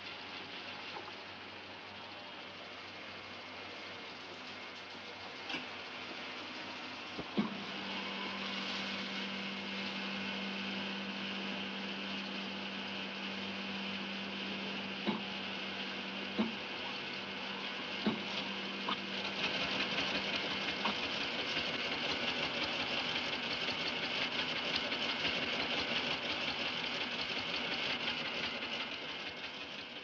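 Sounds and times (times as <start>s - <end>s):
steady electrical hum: 0.0s - 21.4s
fast mechanical clatter: 18.0s - 30.0s.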